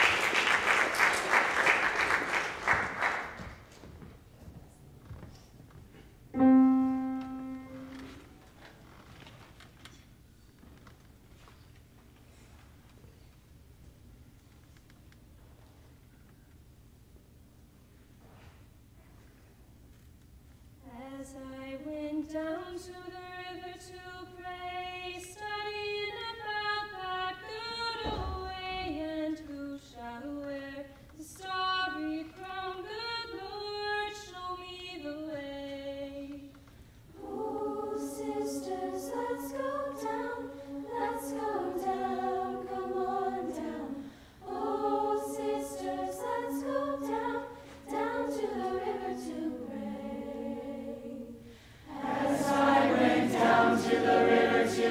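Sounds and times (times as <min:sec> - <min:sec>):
choir singing in harmony: 0:06.4 - 0:08.1, 0:37.1 - 0:54.9.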